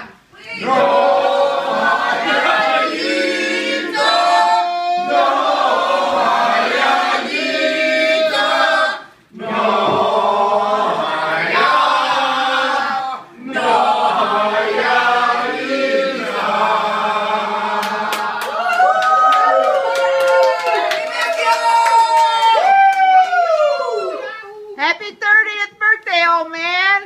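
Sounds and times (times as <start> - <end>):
group of voices singing: 0.0 - 18.6
people clapping: 17.7 - 24.1.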